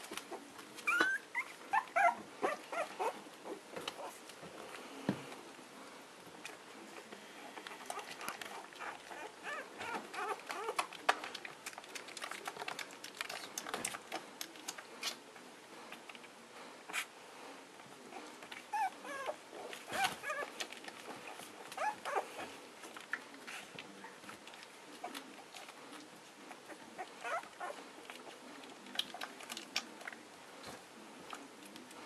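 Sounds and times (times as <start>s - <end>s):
puppies squeaking and whimpering: 0.8s - 4.1s, 7.9s - 10.8s, 18.7s - 20.6s, 21.7s - 22.6s, 26.6s - 27.8s
paws clicking on crate floor: 7.6s - 15.2s, 18.4s - 32.0s.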